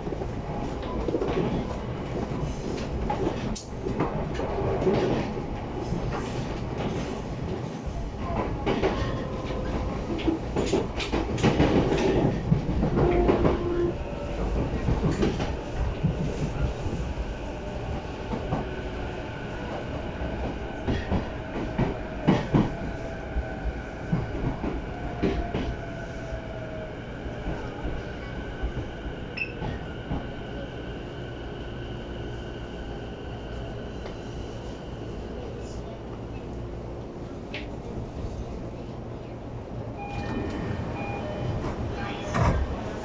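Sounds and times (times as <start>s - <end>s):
train running rumble: 0.0s - 26.2s.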